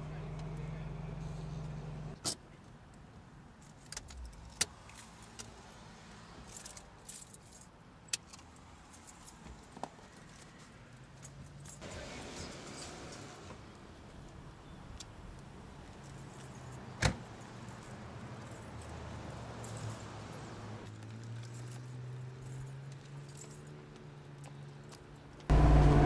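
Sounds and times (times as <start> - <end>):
car keys jangling: 6.5 - 9.4, 16.0 - 23.8.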